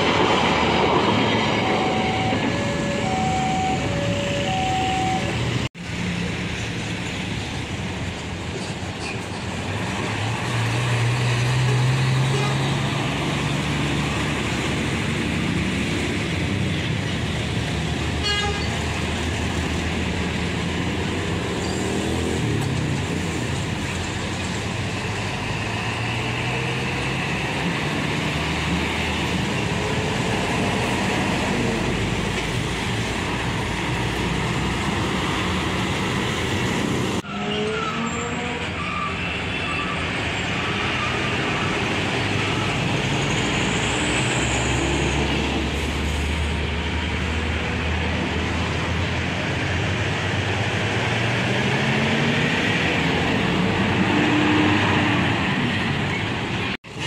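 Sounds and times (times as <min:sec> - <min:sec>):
diesel trucks passing: 0:00.0 - 0:57.0
tyres on road: 0:00.0 - 0:57.0.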